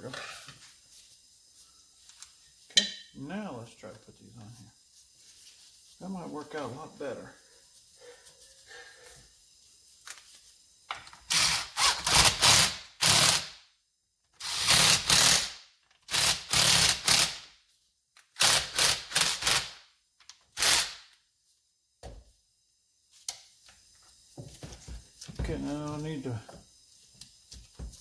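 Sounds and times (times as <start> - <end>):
cordless power driver bursts: 11.3 - 13.6, 14.4 - 17.5, 20.6 - 21.1.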